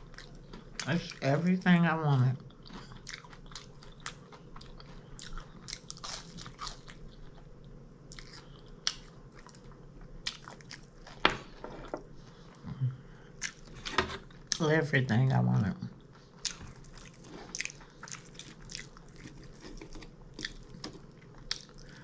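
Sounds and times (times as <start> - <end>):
person chewing crunchy food: 0.0 - 1.0, 2.5 - 11.9, 13.4 - 14.6, 16.3 - 22.0.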